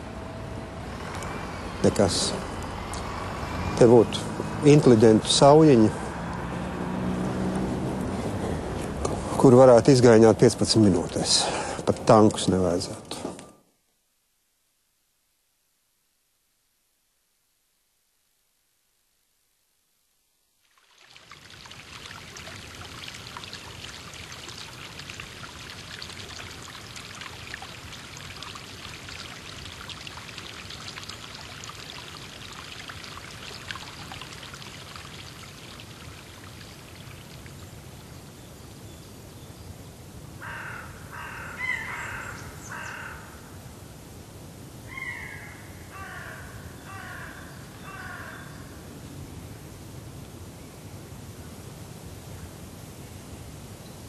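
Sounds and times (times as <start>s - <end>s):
stream water splashing: 0.0s - 13.2s, 20.6s - 38.8s
crow cawing: 40.4s - 43.5s, 44.9s - 48.7s.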